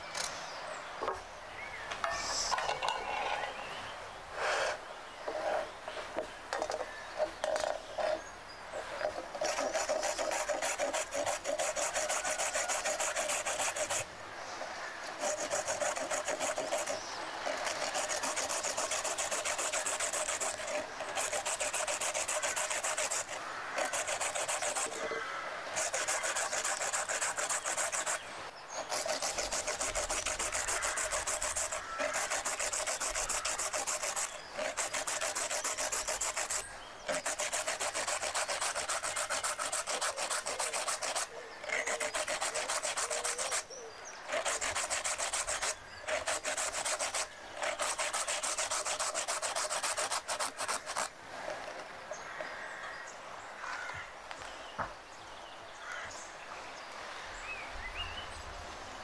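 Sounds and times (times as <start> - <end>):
carrot grated on metal grater: 9.4 - 14.0, 15.2 - 25.0, 25.8 - 28.2, 28.8 - 43.7, 44.3 - 51.1.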